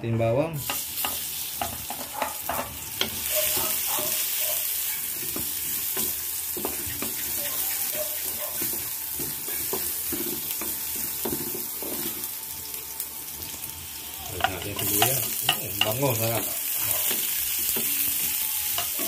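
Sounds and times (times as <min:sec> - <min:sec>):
spatula scraping a pan: 0:00.6 - 0:12.3
garlic sizzling in hot oil: 0:00.6 - 0:19.0.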